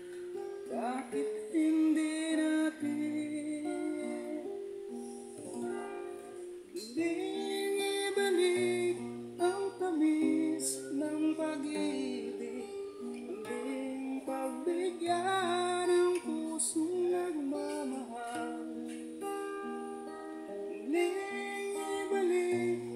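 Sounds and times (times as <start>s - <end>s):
acoustic guitar: 0.0s - 22.9s
man singing a slow ballad: 0.7s - 4.5s, 6.8s - 18.8s, 20.8s - 22.9s.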